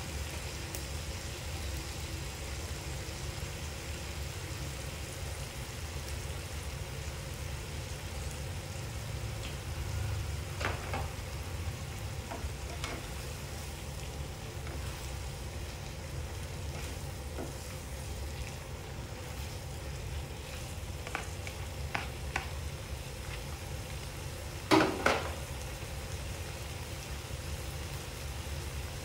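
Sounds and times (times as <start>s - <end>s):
food sizzling in a frying pan: 0.0s - 29.0s
spatula scraping pan: 12.3s - 13.3s, 16.5s - 22.6s
spatula knocking on pan: 21.0s - 22.6s, 24.7s - 25.4s.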